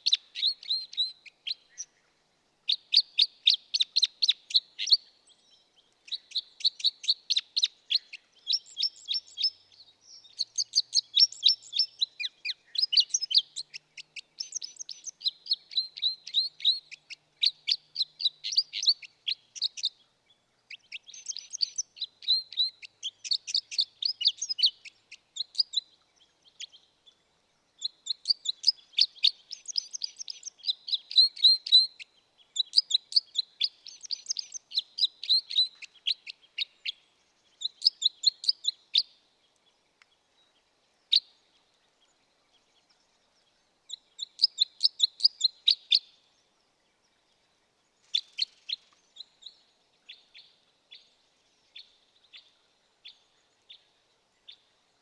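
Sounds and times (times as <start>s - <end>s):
bird chip calls: 0.0s - 2.0s, 6.0s - 20.0s, 20.7s - 26.8s, 27.8s - 37.0s, 37.6s - 39.2s, 43.9s - 46.2s.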